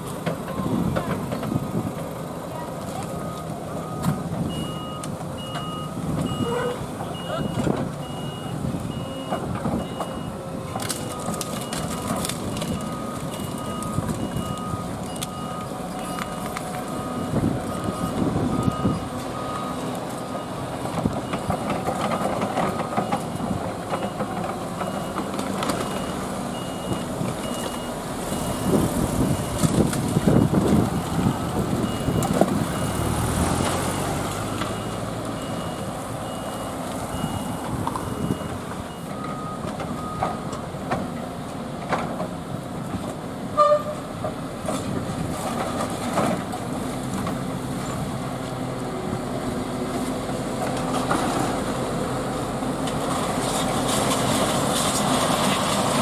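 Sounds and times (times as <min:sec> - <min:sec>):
diesel engines running: 0:00.0 - 0:56.0
low reversing alarm beeping: 0:03.2 - 0:30.6, 0:31.2 - 0:33.1, 0:33.8 - 0:40.6
high-pitched reversing alarm beeping: 0:03.8 - 0:10.4, 0:33.9 - 0:40.4.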